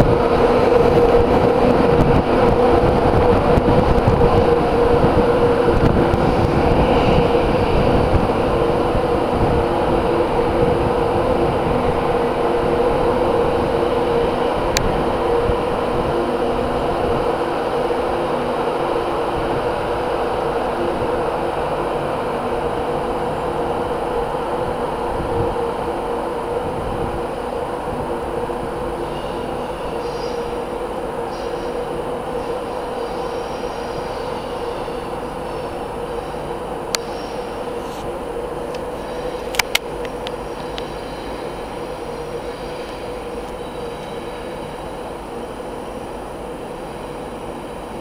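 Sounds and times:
electric locomotive whine: 0.0 - 48.0
faint high squeals: 29.0 - 38.0, 38.9 - 39.5, 40.4 - 45.1.

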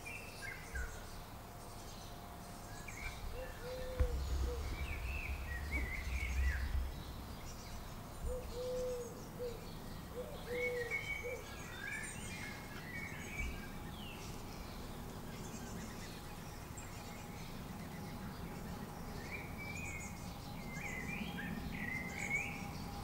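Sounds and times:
low arching bird notes: 0.0 - 23.0
small birds chirping: 0.0 - 23.0
low rumble: 2.9 - 9.5.

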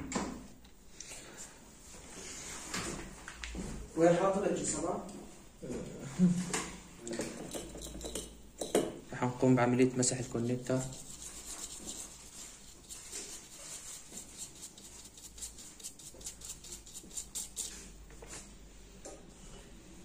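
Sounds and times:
brush scrubbing metal pins: 10.2 - 18.0.

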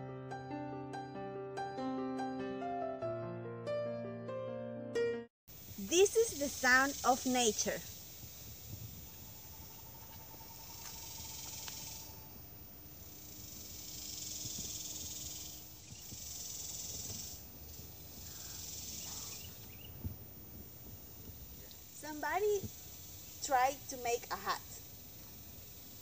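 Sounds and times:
high-pitched insect buzz: 5.5 - 26.0
thin steady tone: 5.7 - 17.4
faint high chirps: 6.4 - 17.4.

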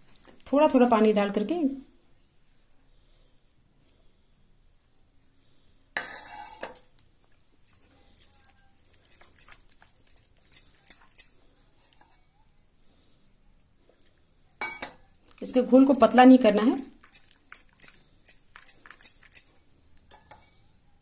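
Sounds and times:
spoon stirring batter: 6.0 - 6.9.

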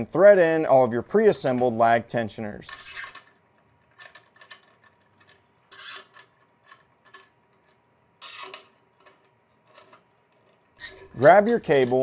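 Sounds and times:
metal threads scraping: 5.7 - 7.3, 8.2 - 12.0.

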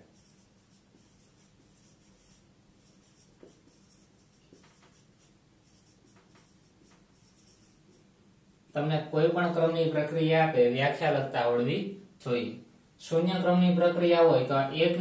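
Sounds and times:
marker writing on whiteboard: 0.0 - 8.1.

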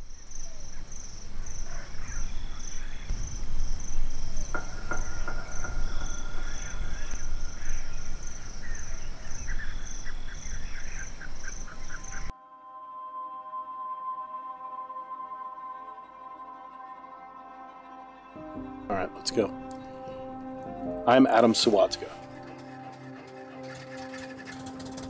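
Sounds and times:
birds chirping: 0.0 - 12.3, 18.8 - 25.0
crickets chirping: 0.0 - 12.3, 18.9 - 25.0
high insect hiss: 0.0 - 12.3.

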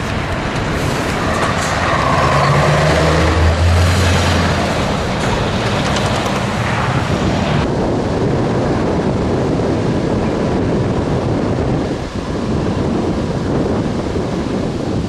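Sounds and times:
heavy truck driving past: 0.0 - 7.6
wind rumbling on microphone: 0.0 - 15.0.

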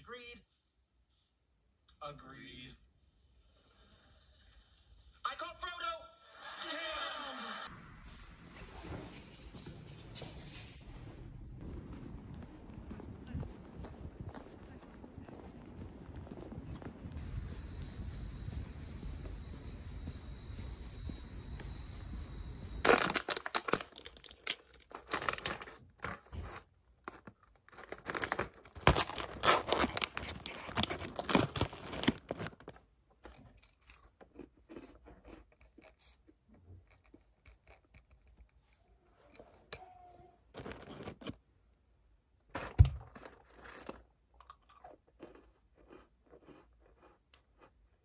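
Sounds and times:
steady low rumble: 7.7 - 22.8
wrapping crinkling and tearing: 22.8 - 34.3.

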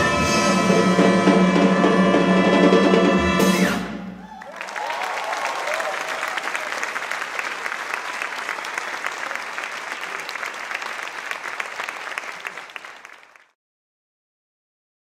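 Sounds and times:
audience applauding: 4.2 - 13.6.

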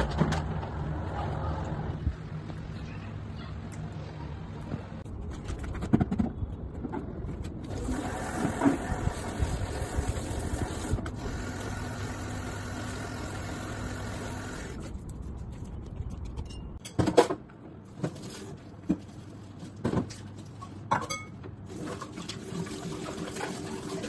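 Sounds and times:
knocks and clatter: 5.2 - 7.6.

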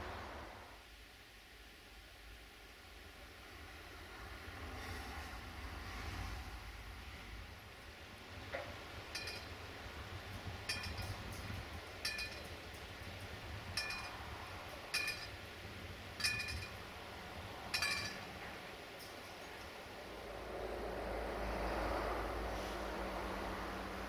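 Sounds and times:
short ringing clink: 9.1 - 9.6, 10.7 - 12.8, 13.7 - 14.2, 14.9 - 15.4, 16.2 - 16.8, 17.7 - 18.4.

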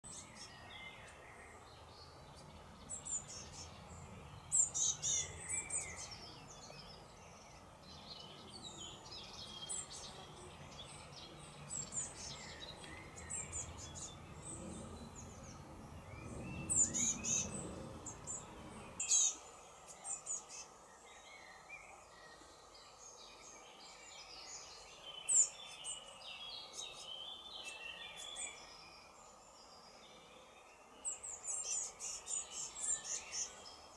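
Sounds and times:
birds chirping: 0.0 - 33.9.

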